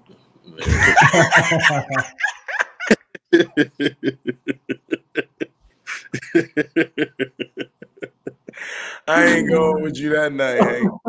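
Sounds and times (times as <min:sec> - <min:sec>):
men laughing: 0:00.6 - 0:11.0.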